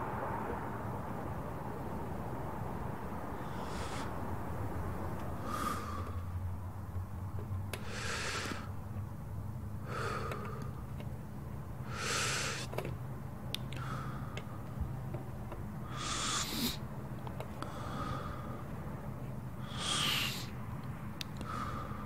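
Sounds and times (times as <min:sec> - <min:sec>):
low steady hum: 0:00.0 - 0:22.0
slow heavy breathing: 0:03.3 - 0:06.9, 0:07.7 - 0:08.9, 0:09.7 - 0:11.0, 0:11.8 - 0:12.8, 0:13.7 - 0:15.1, 0:15.8 - 0:22.0.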